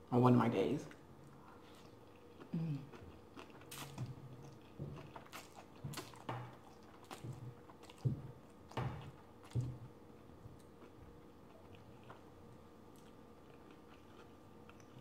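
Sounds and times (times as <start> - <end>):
person slurping and chewing noodles: 1.4 - 8.1.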